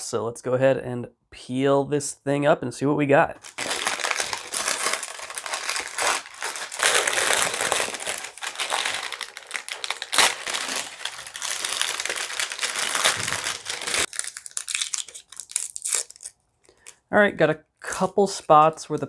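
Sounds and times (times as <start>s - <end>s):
parchment paper crinkling: 3.4s - 17.0s
plastic cracking: 3.4s - 17.0s.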